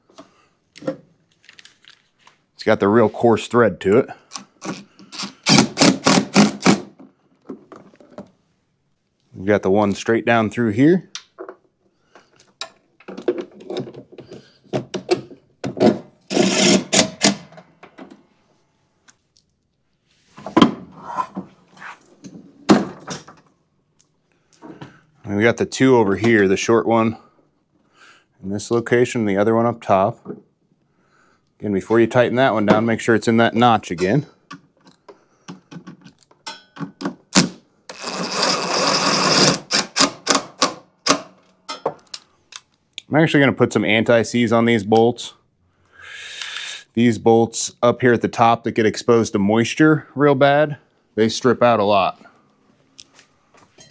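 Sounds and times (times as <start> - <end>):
cordless drill driving screws: 16.3 - 17.4, 37.9 - 40.4
clicks and knocks of handling: 34.0 - 37.2.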